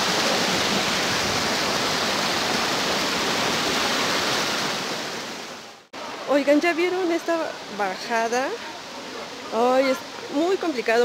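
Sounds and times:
water splashing over rocks: 0.0s - 11.0s.

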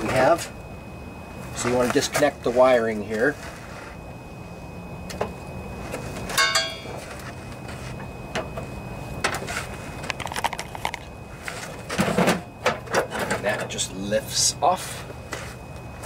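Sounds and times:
clicks and rattles: 10.1s - 11.0s.

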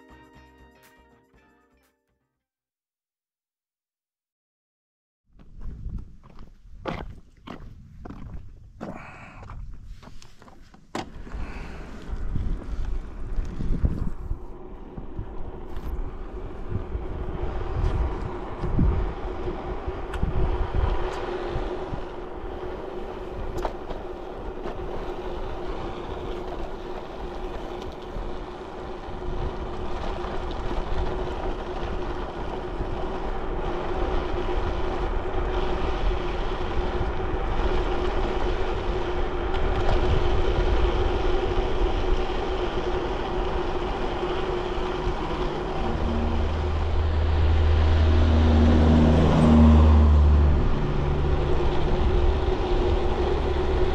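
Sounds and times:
wind gusts on microphone: 5.4s - 10.2s, 11.2s - 53.9s
low steady drone: 14.2s - 53.9s
steady hum: 34.6s - 48.7s.

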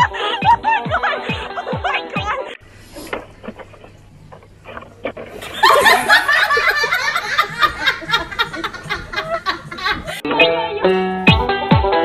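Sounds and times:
people laughing loudly: 0.0s - 2.1s, 5.4s - 10.2s.

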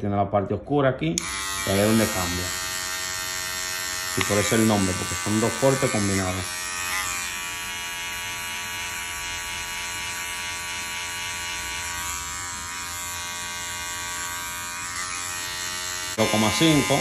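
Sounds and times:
electric hair clipper buzzing: 1.2s - 17.0s.

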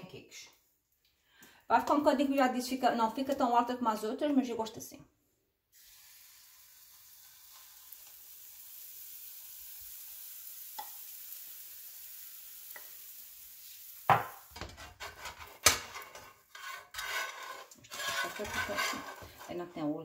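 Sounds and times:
batter sizzling in frying pan: 5.7s - 16.6s
spatula knocking and scraping pan: 14.1s - 19.8s.

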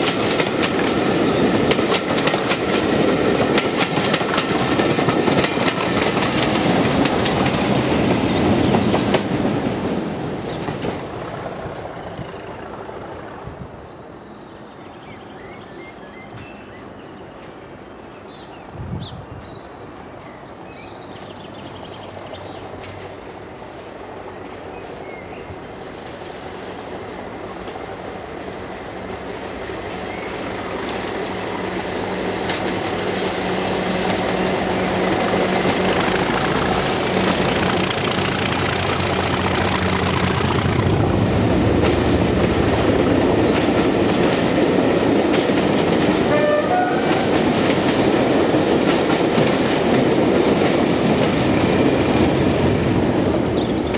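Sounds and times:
train wheels clicking on rails: 0.0s - 13.7s, 21.2s - 53.9s
diesel locomotive engine running: 26.2s - 53.9s.

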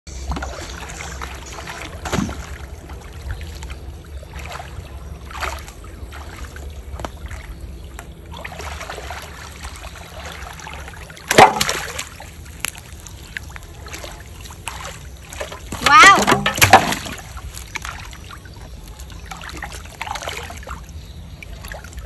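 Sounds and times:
muddy water sloshing: 0.1s - 22.0s
loud splash: 8.4s - 12.2s.

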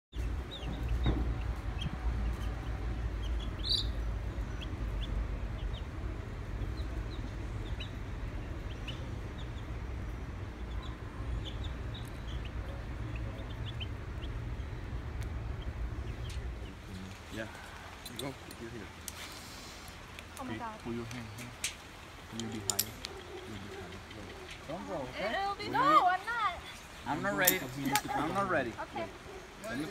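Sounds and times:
chicks peeping: 0.3s - 9.7s, 10.4s - 16.8s.

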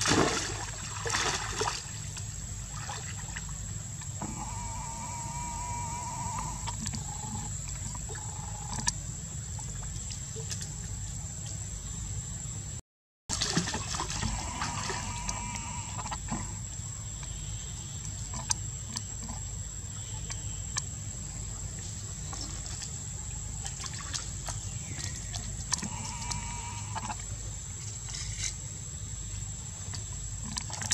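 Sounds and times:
high-pitched whine: 4.2s - 7.5s.

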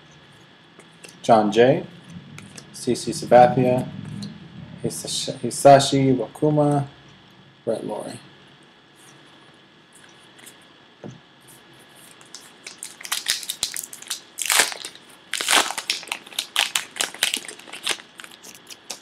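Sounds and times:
wrapper crackling and crinkling: 12.1s - 19.0s.

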